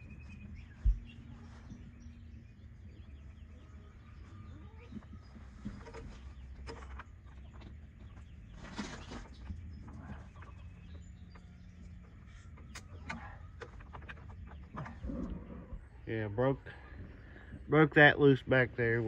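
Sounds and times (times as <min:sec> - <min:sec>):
chickens clucking: 0:02.9 - 0:16.0.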